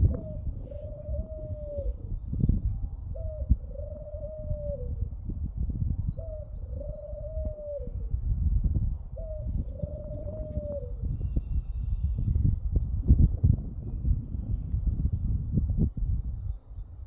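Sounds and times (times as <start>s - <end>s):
dove cooing: 0.0s - 5.1s, 6.1s - 8.3s, 9.1s - 11.6s
wind rumble on microphone: 0.0s - 17.0s.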